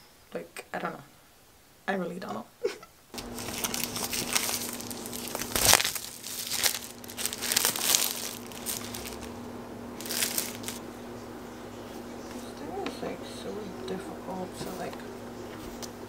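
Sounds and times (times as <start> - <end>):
faint steady hum: 0.0 - 16.0
plastic wrapping crinkling: 3.2 - 10.9.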